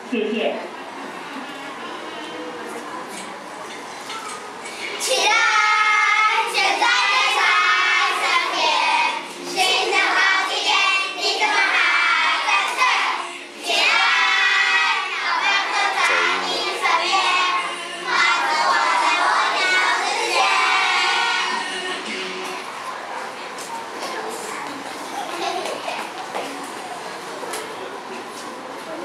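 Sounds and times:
children singing: 5.0s - 22.7s.

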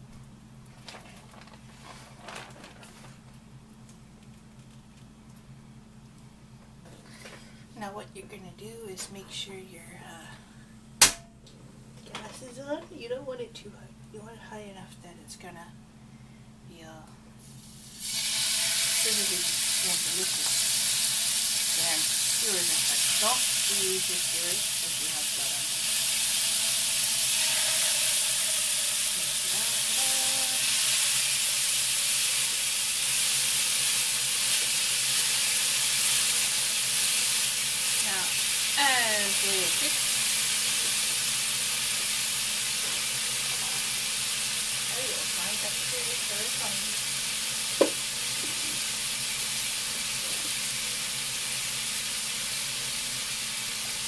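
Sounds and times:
sharp knock: 11.0s - 11.4s, 47.8s - 48.0s
meat skewers sizzling in a pan: 17.5s - 54.0s.

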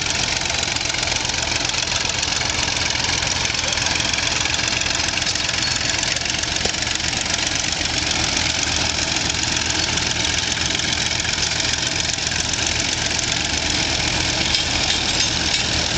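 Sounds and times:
crawler tractor engine under load: 0.0s - 15.9s
elevating scraper engine running: 0.0s - 15.9s.

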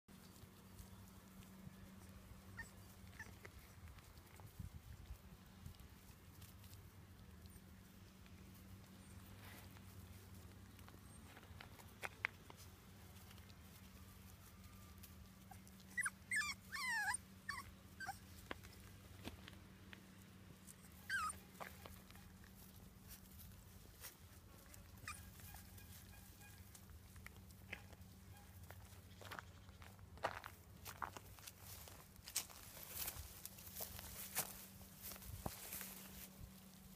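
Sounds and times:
faint low hum: 0.1s - 36.9s
puppies whining: 2.0s - 3.6s, 14.7s - 18.9s, 20.6s - 22.4s, 24.7s - 26.7s.

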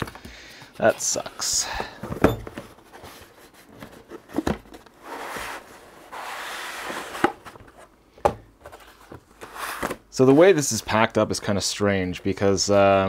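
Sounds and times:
cardboard box scraping out of sleeve: 5.0s - 7.4s.

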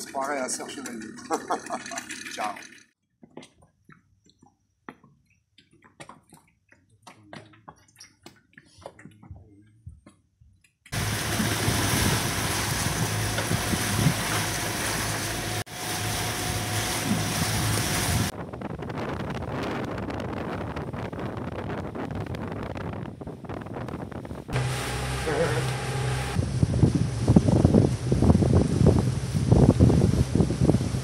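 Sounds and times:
water lapping against boat: 10.9s - 18.3s, 24.3s - 31.0s
rush of water and wind: 11.0s - 31.0s
low hum: 24.5s - 31.0s.

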